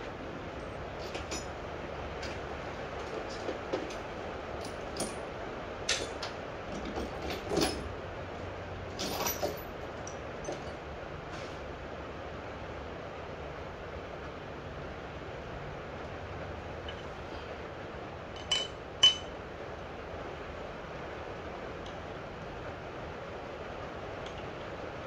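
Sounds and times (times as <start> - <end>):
steady background hiss: 0.0 - 25.0
metal tools clinking: 1.0 - 1.6, 9.0 - 9.7, 18.4 - 19.3.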